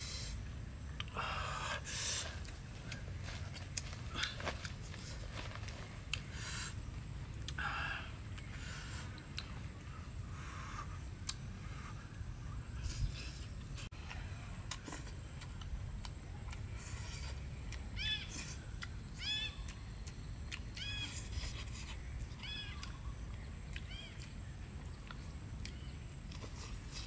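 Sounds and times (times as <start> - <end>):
steady low rumble: 0.0 - 20.8
animal crying: 20.8 - 21.2.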